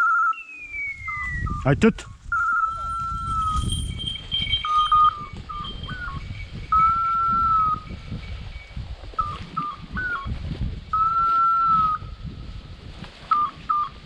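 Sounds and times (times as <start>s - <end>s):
electronic collar beeps and tone: 0.0s - 10.3s
low rustling of brush: 2.2s - 14.0s.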